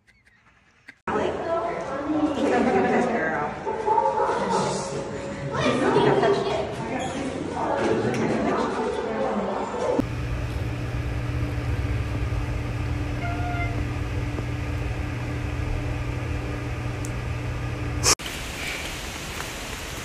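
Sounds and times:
low mechanical hum: 10.0 - 18.2
faint high-pitched squeak: 13.2 - 13.8.

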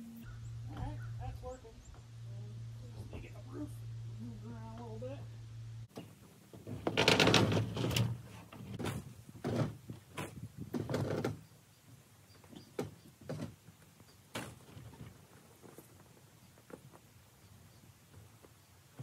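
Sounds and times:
rattling knocks and bangs: 5.9 - 11.4
camper trailer creaking and clunking: 5.9 - 11.5, 12.3 - 17.0.

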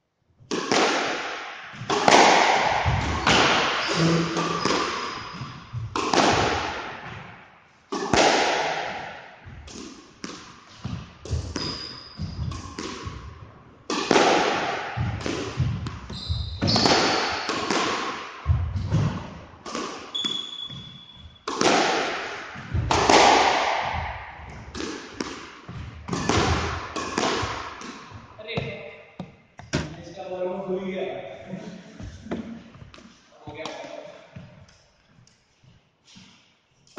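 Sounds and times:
squash ball hitting rackets and walls: 0.4 - 30.4
court shoes squeaking: 2.8 - 6.0, 10.7 - 13.2, 15.6 - 17.7, 20.0 - 21.5.

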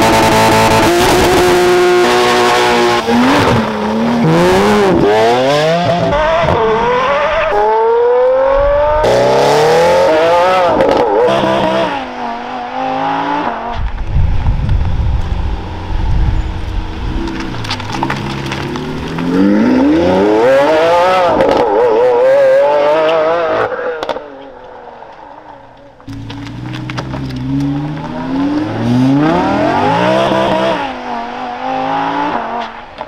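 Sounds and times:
car accelerating through gears: 0.0 - 13.7, 26.1 - 32.7
car engine revving: 0.0 - 33.0
low engine rumble: 13.9 - 19.2, 25.8 - 29.5.

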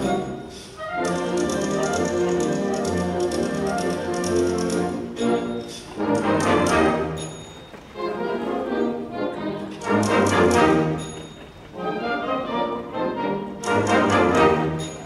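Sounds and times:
concert band playing: 0.0 - 7.9.

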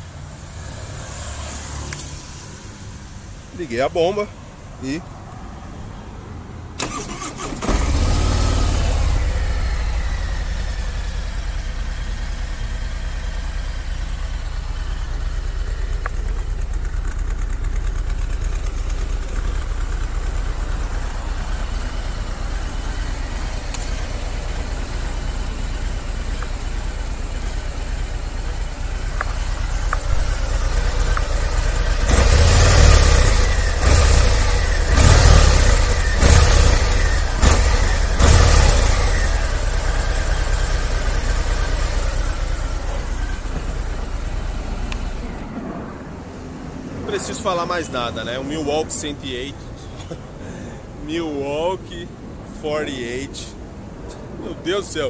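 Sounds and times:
motorcycle engine revving: 6.8 - 46.0
motorcycle engine starting and idling: 6.8 - 46.4.

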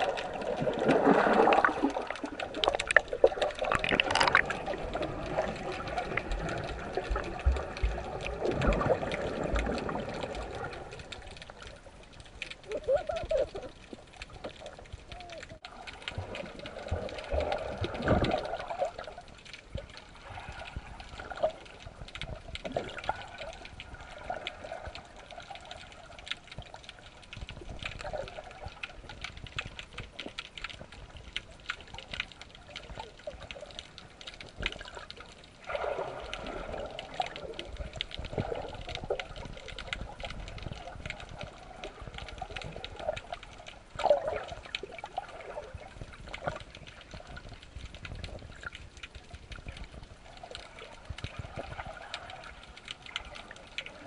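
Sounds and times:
water gurgling surges: 0.0 - 26.8, 32.6 - 48.7
water bubbling and trickling: 0.0 - 54.0
small clicks: 1.9 - 35.6, 36.2 - 54.0.

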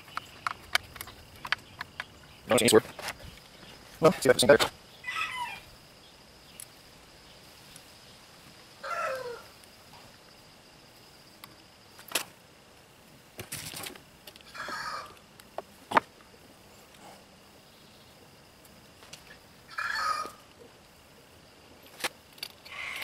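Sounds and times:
animal calls: 4.9 - 5.8, 8.8 - 9.6, 14.4 - 15.2, 19.6 - 20.5, 22.6 - 23.0.

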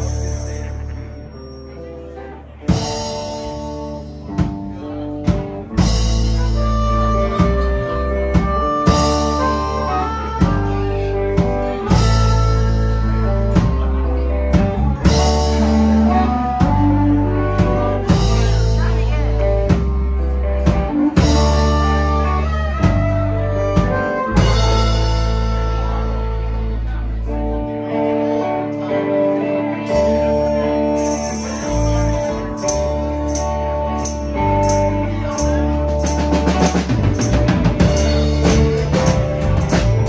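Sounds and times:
drum kit: 0.0 - 1.2, 2.6 - 26.9, 29.9 - 40.0
electric guitar: 0.0 - 40.0
keyboard: 0.0 - 40.0
harmonica: 6.1 - 14.0.

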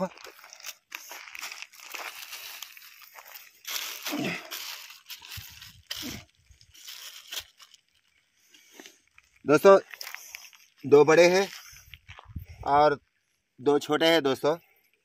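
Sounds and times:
plastic and net rustling: 0.0 - 9.3.

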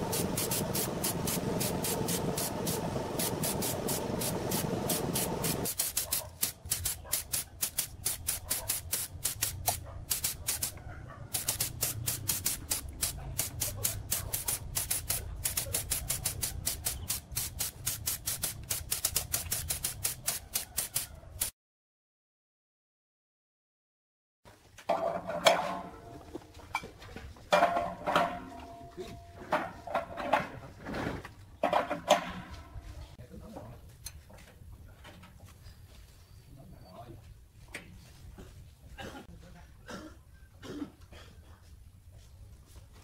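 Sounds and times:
paint spray gun hissing: 0.0 - 21.5.

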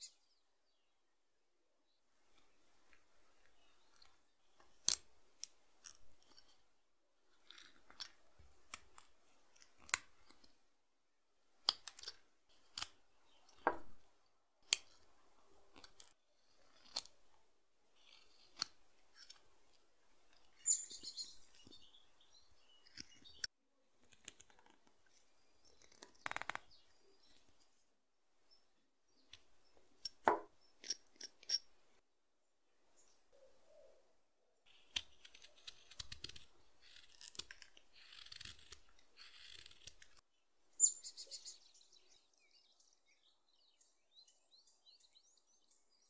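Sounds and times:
knife cutting wood: 4.8 - 6.6, 11.6 - 14.0, 14.6 - 17.3, 18.0 - 21.8, 29.3 - 31.7, 34.7 - 40.2.

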